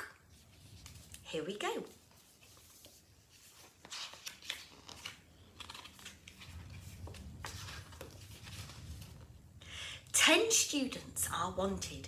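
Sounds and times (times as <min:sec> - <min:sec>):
paper rustling and page flicks: 0:00.3 - 0:09.2.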